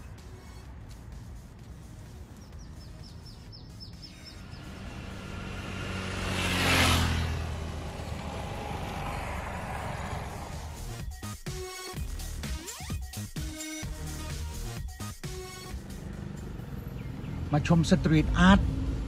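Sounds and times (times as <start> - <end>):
bird chirping: 2.0 - 6.9, 16.7 - 17.6
vehicle driving past: 3.8 - 11.1, 15.7 - 19.0.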